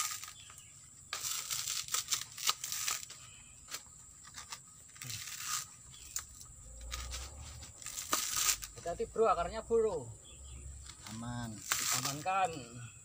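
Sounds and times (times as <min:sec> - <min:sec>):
fibrous husk tearing and rasping: 0:00.0 - 0:03.4, 0:04.1 - 0:08.8, 0:10.8 - 0:12.5
machete cutting coconut husk: 0:00.0 - 0:09.0, 0:10.8 - 0:12.7.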